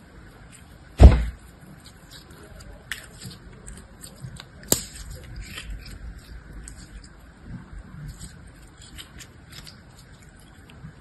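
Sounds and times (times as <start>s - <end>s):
loud thump: 1.0s - 1.4s.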